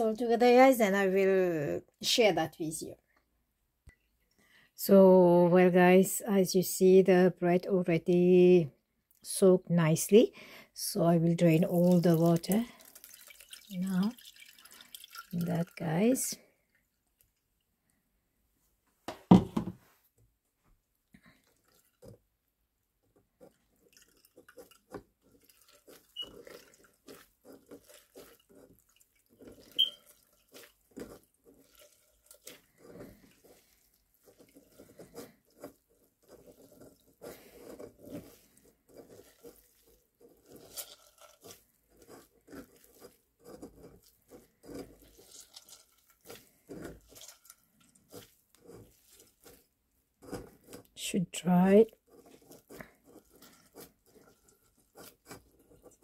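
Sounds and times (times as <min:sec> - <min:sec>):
soaked bread squelching: 0:11.2 - 0:18.0, 0:20.8 - 0:56.0
water dripping: 0:11.6 - 0:18.0, 0:21.1 - 0:22.1, 0:23.4 - 0:32.8.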